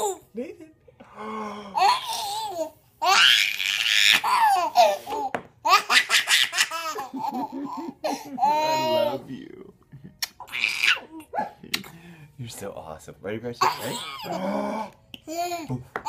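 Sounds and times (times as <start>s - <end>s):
baby laughing: 1.8s - 9.2s, 10.2s - 11.8s, 13.6s - 14.4s.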